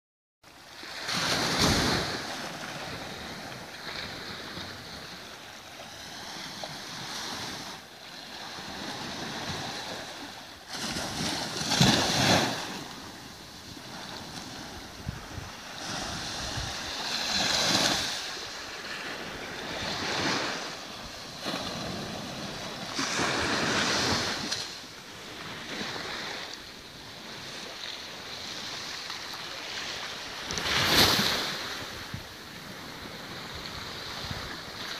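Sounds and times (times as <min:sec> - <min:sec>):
waves washing on sandy shore: 0:00.6 - 0:34.9
wind buffeting microphone: 0:14.2 - 0:17.0.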